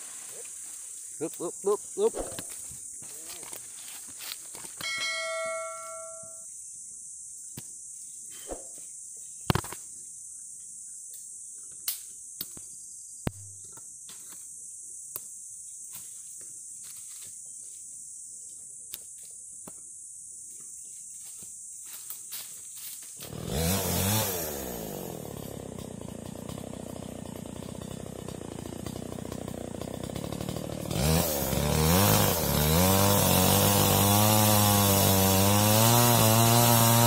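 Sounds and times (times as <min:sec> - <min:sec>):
insects buzzing: 0:00.0 - 0:35.1
bell-like ringing tone: 0:04.8 - 0:06.5.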